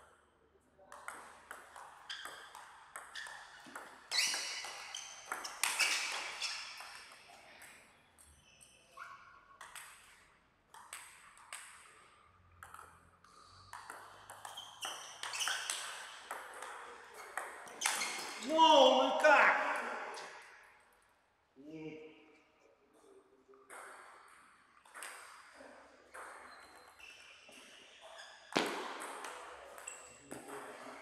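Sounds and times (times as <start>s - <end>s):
ball bouncing on table: 9.6s - 11.9s, 12.6s - 13.0s, 13.6s - 18.4s, 28.5s - 30.9s.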